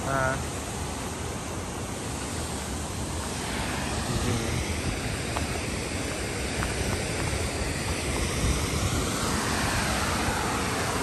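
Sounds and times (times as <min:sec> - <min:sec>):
river tumbling over rocks: 0:02.8 - 0:11.0
wind buffeting microphone: 0:03.4 - 0:11.0.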